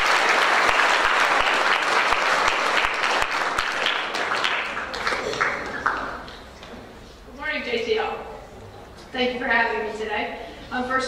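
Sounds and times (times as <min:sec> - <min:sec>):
audience applauding: 0:00.0 - 0:06.4.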